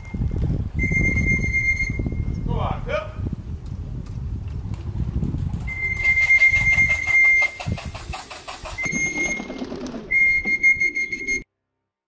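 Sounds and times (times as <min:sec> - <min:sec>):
pigeon wings fluttering: 0:04.7 - 0:11.2
long electronic beeps: 0:08.8 - 0:11.4.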